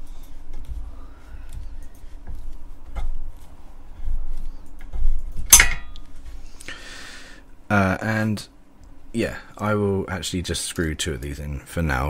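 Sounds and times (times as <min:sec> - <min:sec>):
sharp metallic clink: 0:05.5 - 0:06.0.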